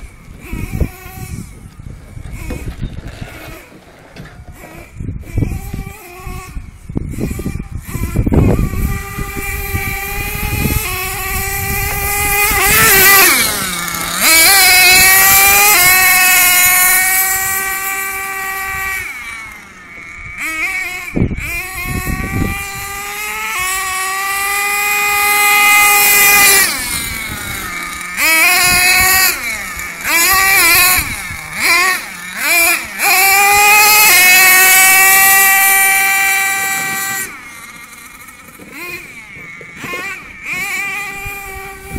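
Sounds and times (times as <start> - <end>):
engine throttle blips: 0.0 - 41.9
nitro engine revving: 0.0 - 41.9.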